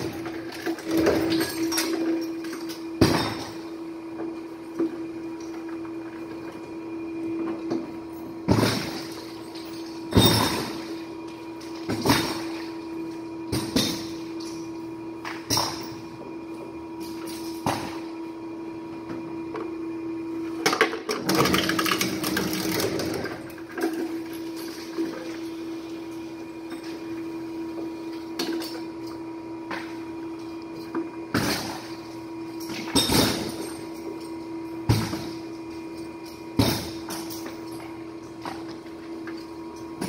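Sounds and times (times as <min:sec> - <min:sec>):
shredder humming: 0:17.6 - 0:32.5.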